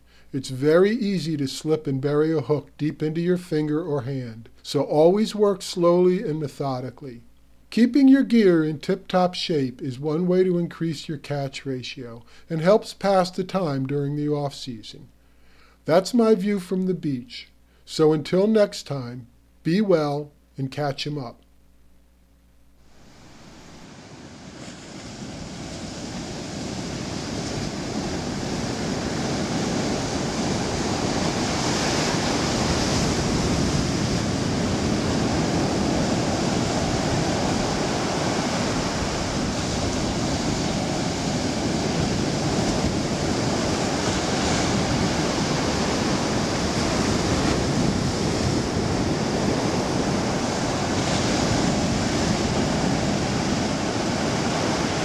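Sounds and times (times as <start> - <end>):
ocean surf breaking: 23.0 - 55.0.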